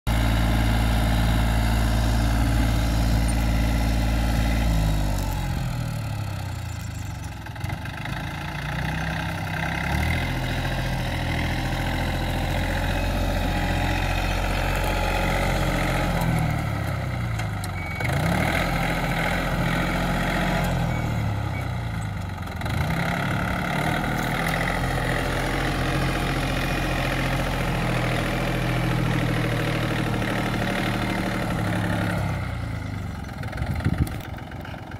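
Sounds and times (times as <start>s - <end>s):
rotary tiller through soil: 0.1s - 34.9s
tractor diesel engine running: 0.1s - 34.9s.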